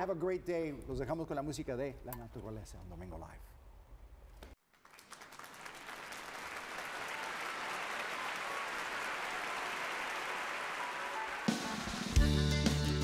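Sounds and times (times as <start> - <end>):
crowd applauding: 4.6 - 12.1.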